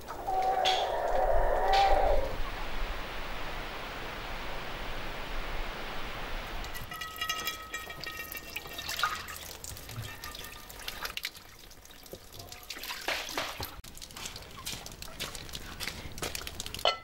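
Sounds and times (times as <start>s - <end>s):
tap water running into pan: 6.7s - 17.0s
pan knocking: 6.8s - 9.4s.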